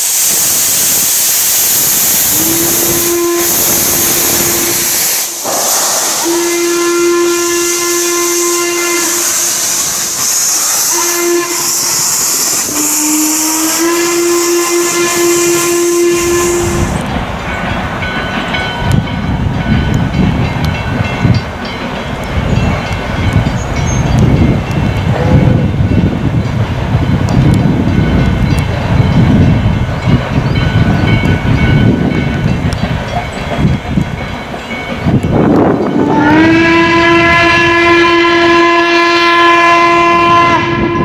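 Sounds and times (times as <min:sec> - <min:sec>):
steam whistle blasts: 0:00.0 - 0:17.0, 0:35.9 - 0:41.0
steam hissing from locomotive: 0:00.0 - 0:27.2
low gusty rumble: 0:22.1 - 0:38.1.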